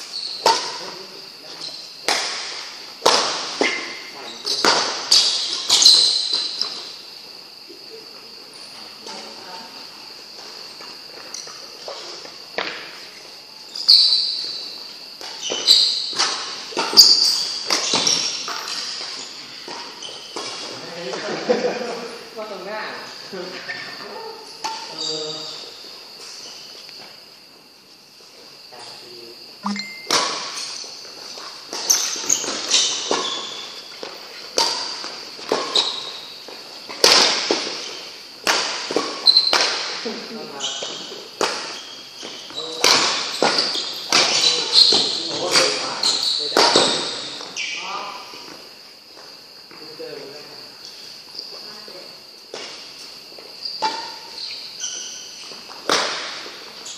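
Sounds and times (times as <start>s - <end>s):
shoes squeaking on court floor: 0.0s - 2.0s, 2.9s - 7.2s, 10.0s - 21.2s, 23.6s - 27.3s, 29.6s - 50.0s, 50.8s - 56.9s
rackets hitting shuttlecock: 2.0s - 6.8s, 15.2s - 20.5s, 29.6s - 30.8s, 36.9s - 37.8s, 38.4s - 40.0s, 42.8s - 45.8s
rackets striking shuttlecock: 29.6s - 30.8s.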